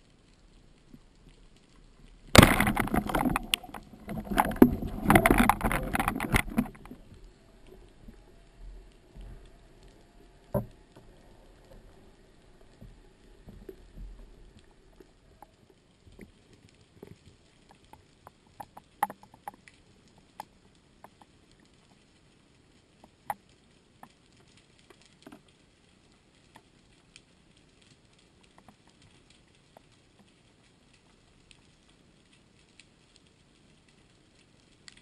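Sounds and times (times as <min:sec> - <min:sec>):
faint underwater clicks and knocks: 0:00.0 - 0:35.0
underwater water rushing: 0:02.2 - 0:15.6.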